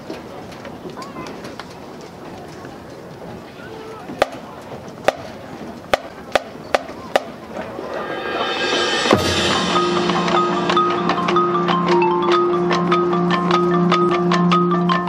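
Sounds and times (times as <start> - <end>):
cymbal swell: 7.5 - 12.6
low drum hit: 7.5 - 12.6
held low brass chord: 7.6 - 12.9
mallet percussion notes: 7.7 - 15.0.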